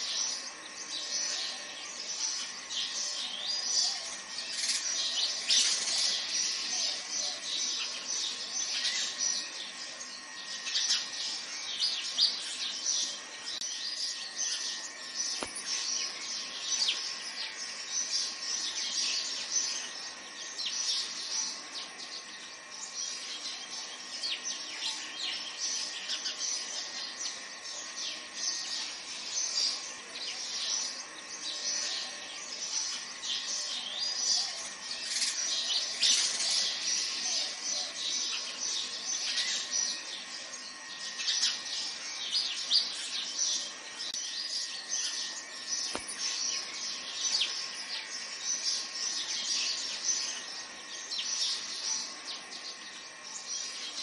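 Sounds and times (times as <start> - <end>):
small birds chirping: 0.0 - 54.0.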